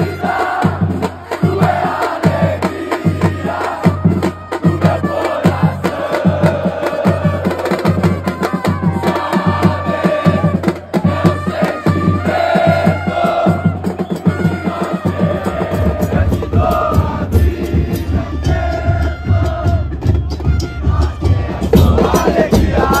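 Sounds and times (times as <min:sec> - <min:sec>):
chant-like singing: 0:00.0 - 0:23.0
heavy drum beat: 0:00.0 - 0:23.0.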